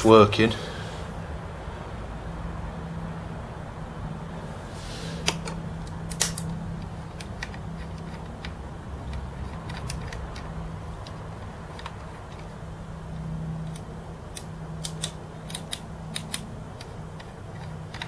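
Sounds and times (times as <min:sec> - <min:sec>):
steady low hum: 0:00.0 - 0:18.0
light handling ticks: 0:05.2 - 0:18.0.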